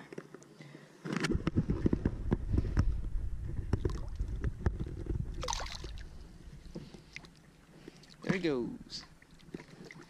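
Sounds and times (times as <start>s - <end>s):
knocks and clatter against canoe: 1.1s - 5.4s, 7.8s - 8.6s
wind rumbling on microphone: 1.2s - 6.9s
water splash: 5.3s - 6.2s.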